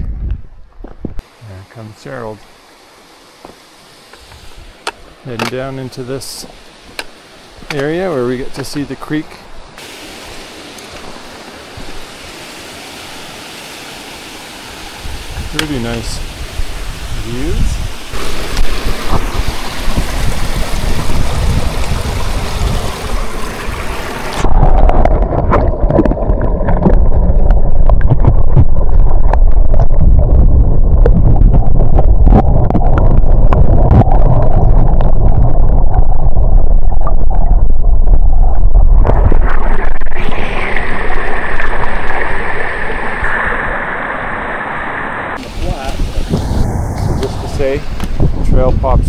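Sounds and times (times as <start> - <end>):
wind buffeting microphone: 0.0 - 1.2, 14.8 - 42.2, 45.4 - 49.0.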